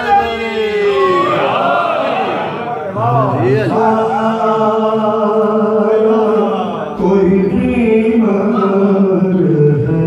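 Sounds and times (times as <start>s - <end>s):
man chanting unaccompanied: 2.9s - 10.0s.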